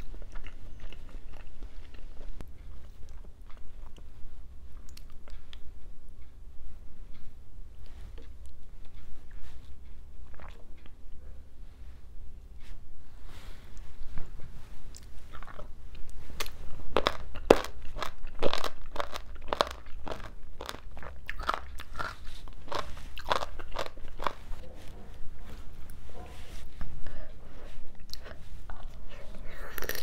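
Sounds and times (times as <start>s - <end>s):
person chewing crunchy food: 0.0s - 4.1s, 10.2s - 11.0s, 14.9s - 24.6s, 27.8s - 30.0s.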